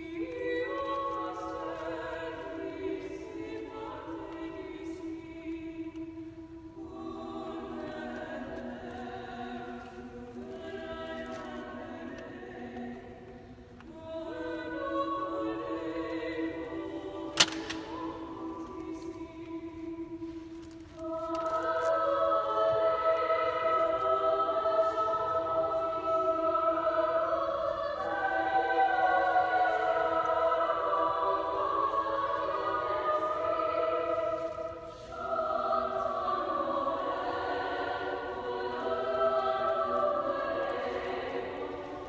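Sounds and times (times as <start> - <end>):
women's choir singing: 0.0 - 42.0
sharp click: 17.4 - 18.0.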